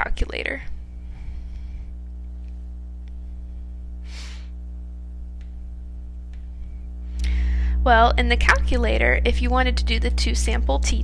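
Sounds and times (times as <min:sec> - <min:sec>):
steady low hum: 0:00.0 - 0:11.0
short noisy breath: 0:04.0 - 0:04.6, 0:07.2 - 0:07.8.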